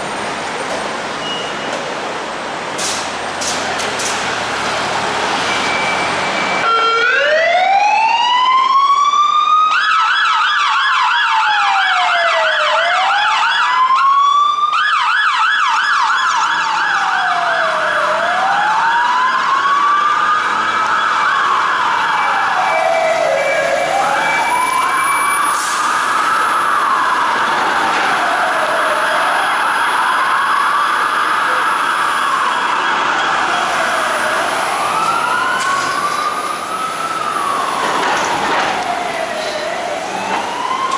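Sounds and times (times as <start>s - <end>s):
siren wailing: 5.6s - 40.9s
siren yelping: 6.6s - 40.9s.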